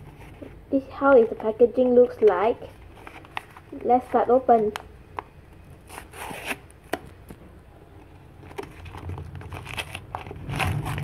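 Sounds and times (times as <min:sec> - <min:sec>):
paper and tape tearing: 0:05.9 - 0:06.7, 0:08.8 - 0:11.0.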